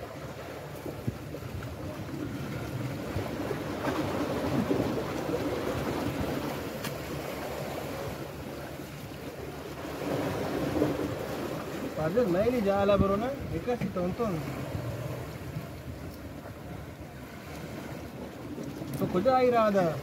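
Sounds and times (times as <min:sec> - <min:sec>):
sea water washing against rocks: 0:00.0 - 0:20.0.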